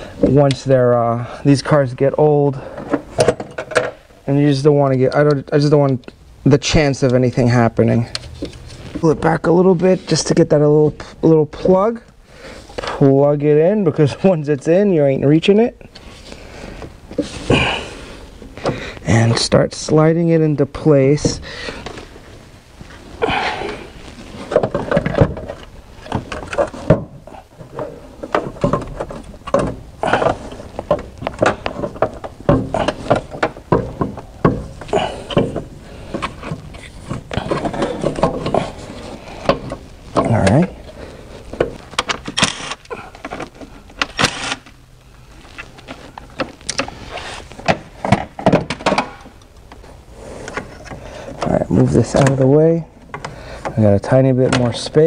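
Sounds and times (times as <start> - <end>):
metal knocks and clunks: 2.7 - 4.0, 24.5 - 40.7.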